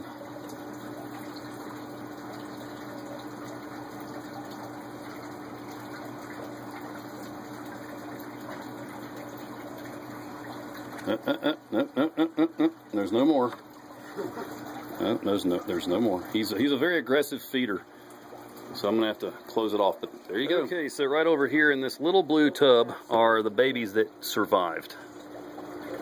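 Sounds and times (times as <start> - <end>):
person speaking: 18.7 - 25.0.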